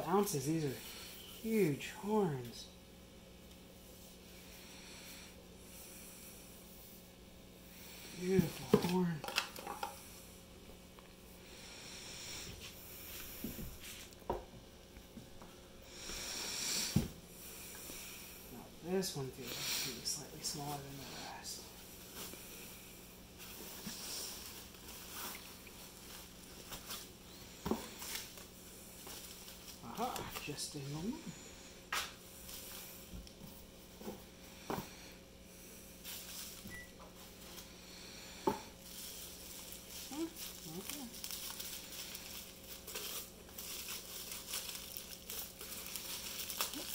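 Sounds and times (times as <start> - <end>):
bubble wrap rustling: 15.9 - 34.4, 35.8 - 46.9.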